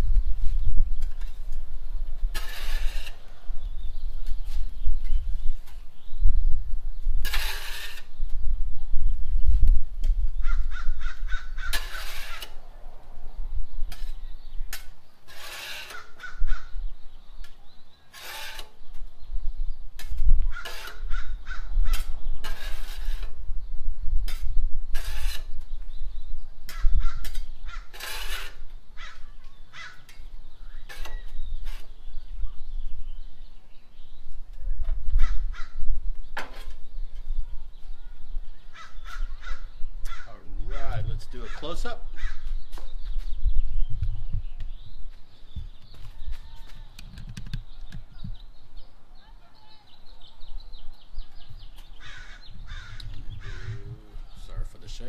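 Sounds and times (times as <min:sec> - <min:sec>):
metal spatula scraping griddle: 0:02.2 - 0:03.9, 0:07.2 - 0:08.2, 0:11.6 - 0:12.7, 0:13.8 - 0:16.4, 0:18.1 - 0:18.9, 0:20.0 - 0:21.2, 0:21.9 - 0:23.4, 0:24.3 - 0:25.7, 0:27.2 - 0:28.7, 0:30.8 - 0:32.2.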